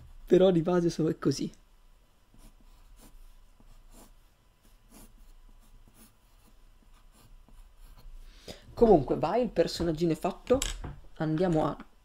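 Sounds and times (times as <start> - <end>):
pencil scratching on paper: 2.3 - 8.3.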